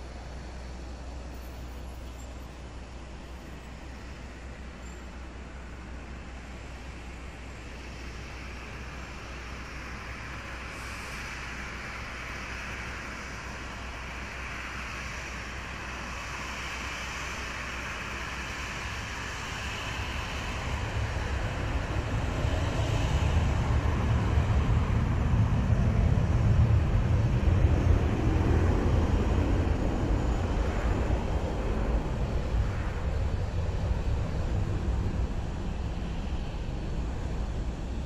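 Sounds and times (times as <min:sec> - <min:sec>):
jet engines spooling up: 0:07.8 - 0:38.0.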